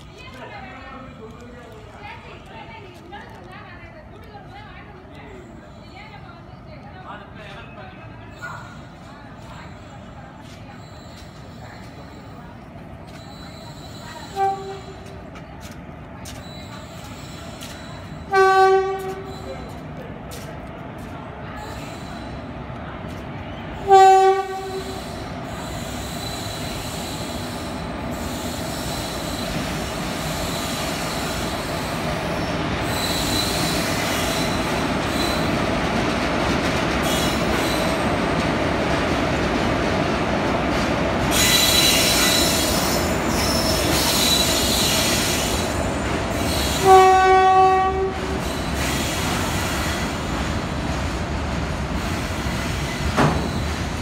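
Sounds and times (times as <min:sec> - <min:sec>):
train passing on rails: 0:00.0 - 0:54.0
train horn blast: 0:14.2 - 0:15.0, 0:18.3 - 0:19.3, 0:23.8 - 0:25.0, 0:46.8 - 0:48.3.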